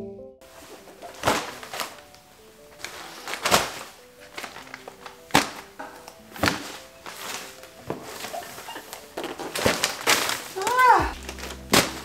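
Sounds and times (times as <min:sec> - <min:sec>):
soft background music: 0:00.0 - 0:12.0
paper and cardboard rustling: 0:00.5 - 0:12.0
boxes thudding on a couch: 0:00.8 - 0:02.0, 0:05.3 - 0:12.0.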